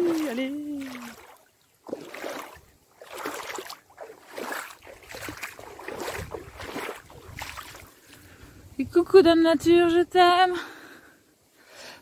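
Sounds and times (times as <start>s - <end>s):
bare feet splashing in puddle: 0.0s - 8.3s.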